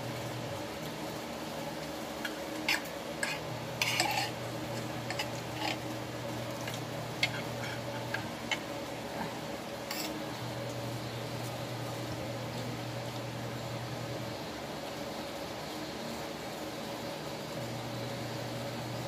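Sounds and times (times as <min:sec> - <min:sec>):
steady low hum: 0:00.0 - 0:19.0
spoon scraping a plate: 0:02.6 - 0:05.9, 0:06.6 - 0:08.6, 0:09.8 - 0:10.3.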